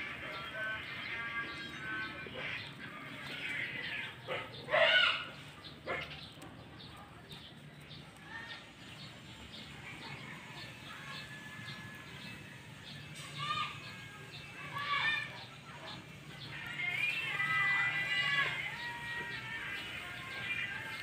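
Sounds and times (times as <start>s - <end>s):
fowl squawking: 0.0s - 6.0s.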